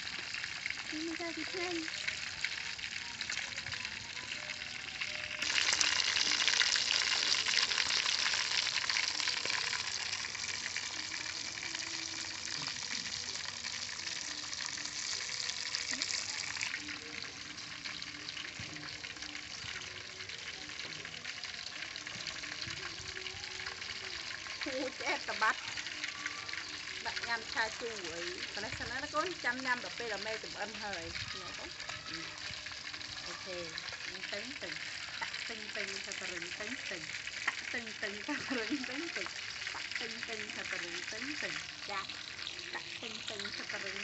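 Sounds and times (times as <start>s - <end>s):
fish sizzling in hot oil: 0.0s - 44.0s.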